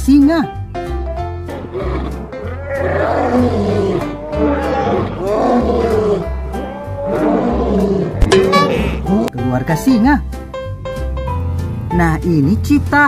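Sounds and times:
lions roaring: 1.5s - 9.3s
background music with beat: 8.2s - 9.3s.

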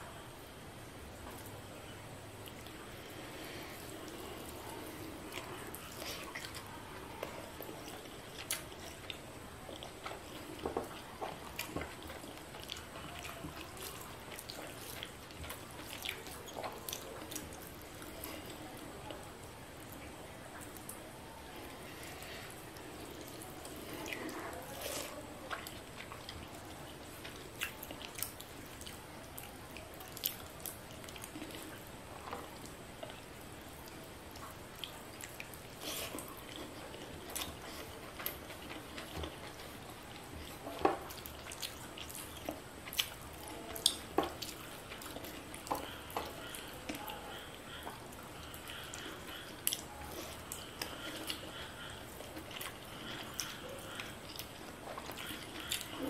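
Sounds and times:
chewing: 2.2s - 56.0s
fingers mixing rice and curry: 21.6s - 56.0s.

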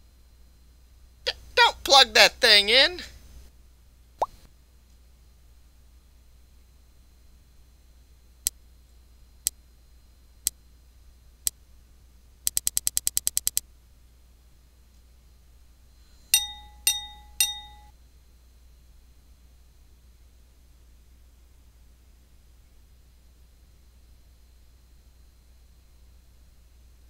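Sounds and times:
sharp clicks: 12.5s - 13.6s
ringing dings: 16.3s - 17.9s.

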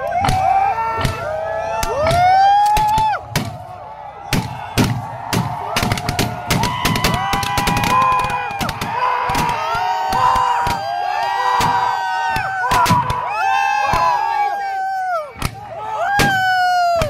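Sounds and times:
gunshots: 2.8s - 10.8s
men shouting cries: 6.6s - 17.0s.

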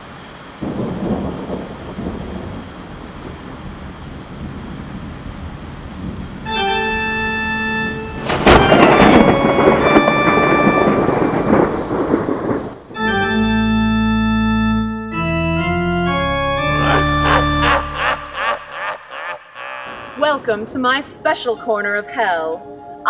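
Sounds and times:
rain hiss: 0.0s - 13.0s
thunder crash rumbling: 0.6s - 6.4s, 7.8s - 13.0s
organ chords: 6.5s - 20.4s.

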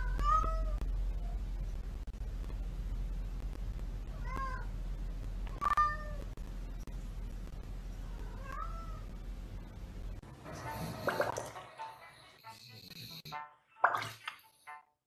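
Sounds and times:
low steady hum: 0.0s - 12.7s
cat meowing: 8.2s - 9.1s.

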